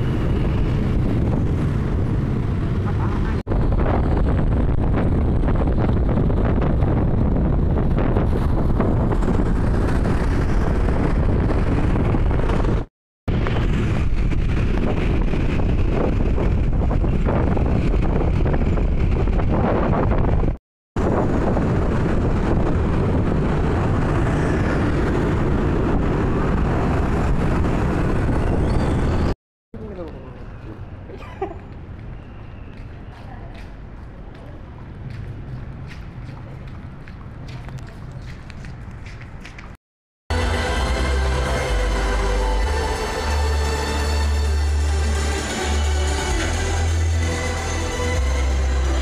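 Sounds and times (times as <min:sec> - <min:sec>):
wind buffeting microphone: 0:00.0 - 0:29.4, 0:30.0 - 0:39.8
road noise: 0:00.0 - 0:49.0
traffic rumble: 0:00.0 - 0:49.0.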